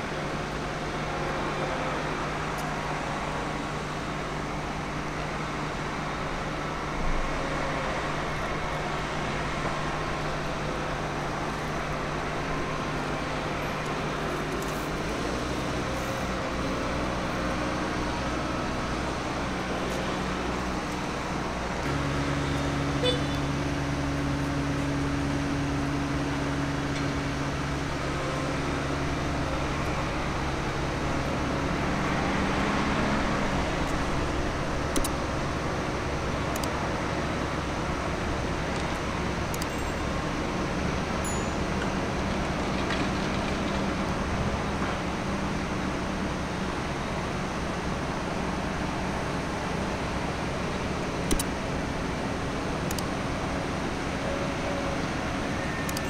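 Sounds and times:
diesel engines running: 0.0s - 56.0s.

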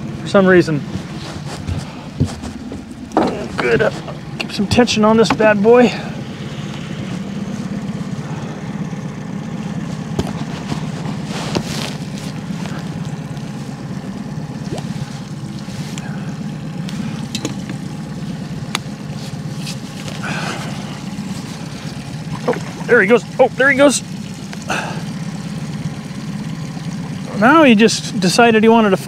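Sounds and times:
outboard motor running: 0.0s - 29.0s.

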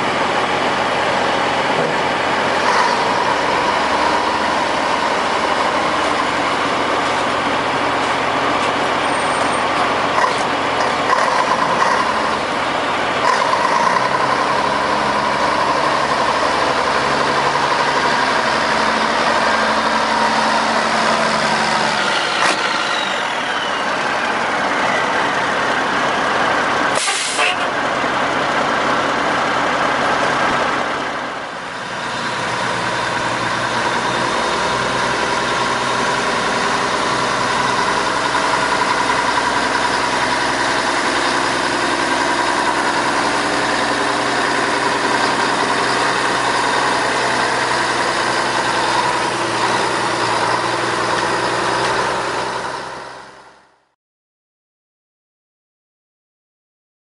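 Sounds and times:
diesel truck engine running: 0.0s - 53.9s
air brakes hissing: 26.9s - 27.7s.

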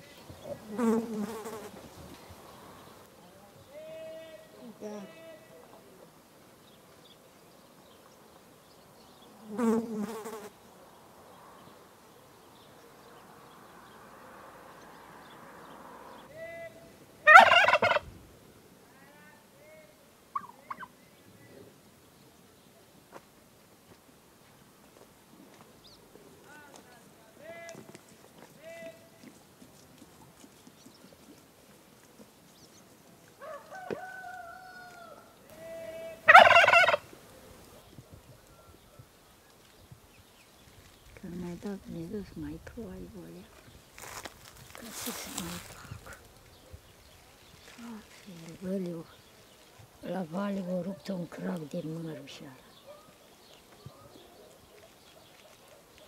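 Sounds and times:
flying insect buzzing past: 0.6s - 2.9s, 9.4s - 10.6s
poultry warbling call: 17.2s - 18.1s, 20.3s - 21.0s, 35.9s - 37.2s
rooster crowing: 17.3s - 18.0s, 33.4s - 35.4s, 36.3s - 37.0s.

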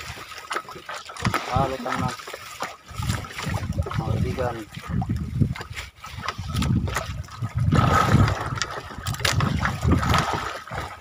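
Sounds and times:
water splashing around boat: 0.0s - 11.0s
low rumbling: 6.5s - 10.5s.

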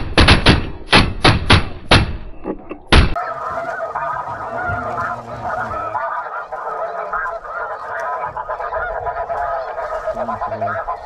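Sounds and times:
flock of geese calling: 3.2s - 11.0s.

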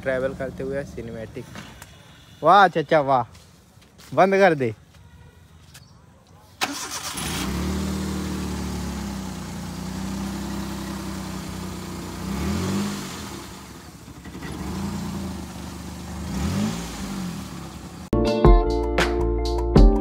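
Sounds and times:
car engine revving: 6.7s - 18.1s
background music: 18.2s - 20.0s.

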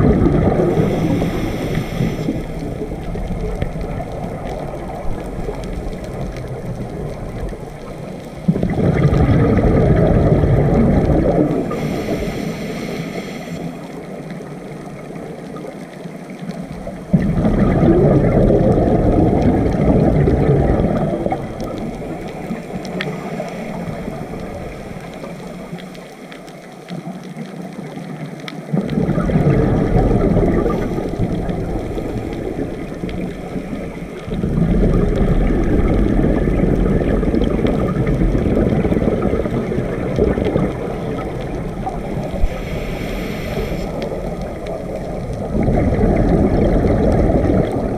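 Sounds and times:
diver exhaling bubbling rumble: 0.0s - 14.2s, 17.0s - 26.0s, 28.7s - 47.9s
high hiss of inhalation: 0.7s - 2.6s, 11.7s - 13.9s, 42.4s - 44.0s.

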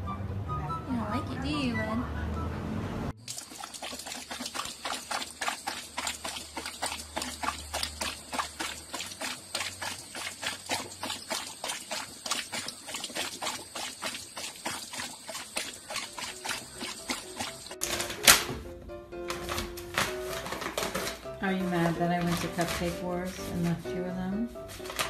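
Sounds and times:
dog lapping water: 3.2s - 17.8s
tap running: 3.2s - 24.0s.

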